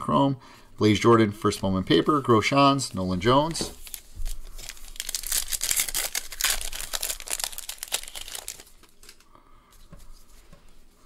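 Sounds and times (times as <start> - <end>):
foil wrapper crinkling and tearing: 3.8 - 9.3.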